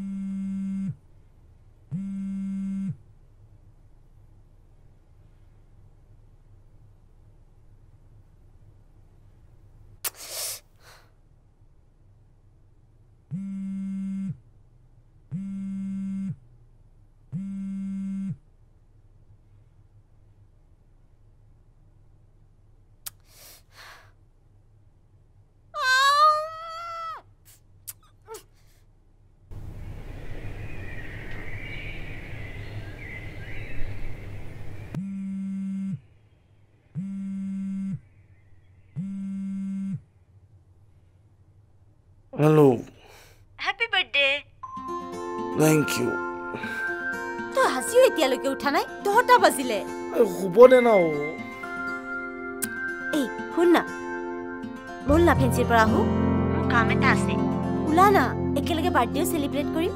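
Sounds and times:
phone vibrating buzzes: 0.0 - 1.0, 1.9 - 3.0, 13.3 - 14.4, 15.3 - 16.5, 17.3 - 18.4, 35.0 - 36.0, 37.0 - 38.0, 39.0 - 40.1.

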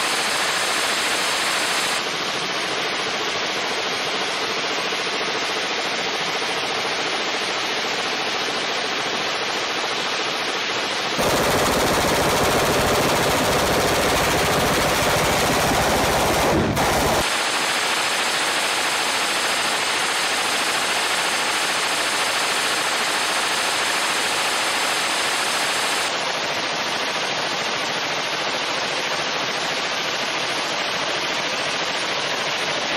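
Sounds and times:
suppressed machine gun automatic fire: 11.1 - 26.2.

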